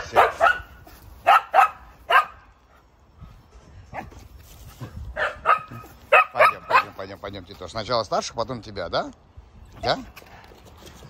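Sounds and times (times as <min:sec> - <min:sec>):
dog barking: 0:00.0 - 0:02.5, 0:05.2 - 0:07.0.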